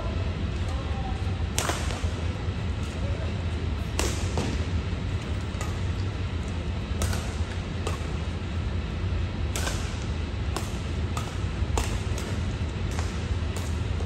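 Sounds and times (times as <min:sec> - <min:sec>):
steady low hum: 0:00.0 - 0:14.0
racket hitting shuttlecock: 0:01.5 - 0:02.2, 0:03.8 - 0:08.3, 0:09.5 - 0:14.0.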